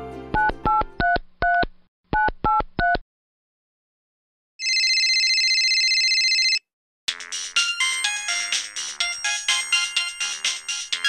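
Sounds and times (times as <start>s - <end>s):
phone ringback tone: 4.6s - 6.6s.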